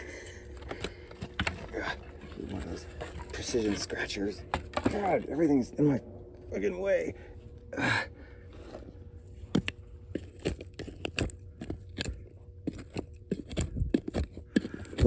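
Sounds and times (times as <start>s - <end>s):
hand tool scraping dirt: 8.5s - 15.0s.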